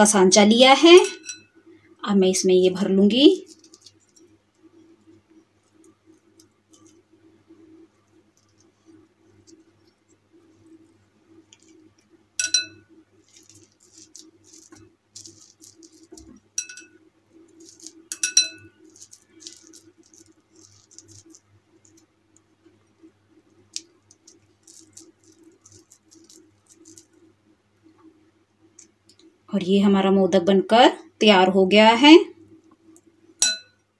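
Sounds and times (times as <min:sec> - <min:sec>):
low steady hum: 0:00.0 - 0:33.9
glass bowl clinking: 0:01.0 - 0:01.6, 0:12.4 - 0:17.0, 0:17.6 - 0:19.8, 0:33.4 - 0:33.8.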